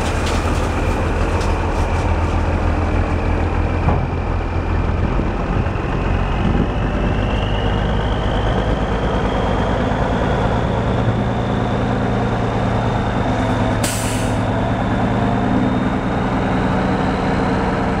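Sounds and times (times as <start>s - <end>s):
diesel truck engine idling: 0.0s - 18.0s
compressed air hiss: 13.8s - 14.4s.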